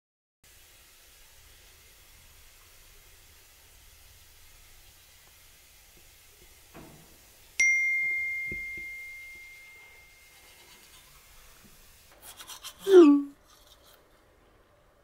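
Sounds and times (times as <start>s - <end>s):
bell-like ding: 7.6s - 10.5s.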